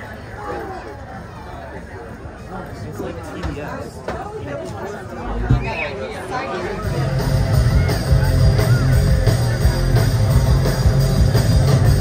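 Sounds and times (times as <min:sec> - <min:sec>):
drums: 0:03.3 - 0:12.0
bass guitar: 0:06.6 - 0:12.0
electric guitar: 0:06.8 - 0:12.0.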